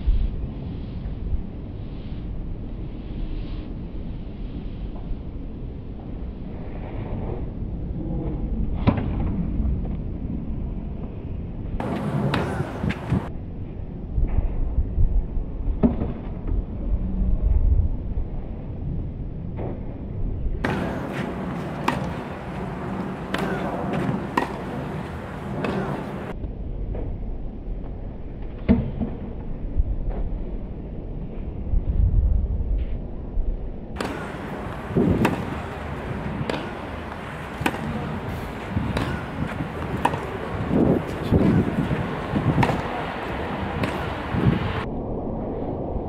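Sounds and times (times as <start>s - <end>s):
low outdoor rumble: 0.0s - 46.0s
rackets striking tennis balls: 11.8s - 13.3s, 20.6s - 26.3s, 34.0s - 44.8s.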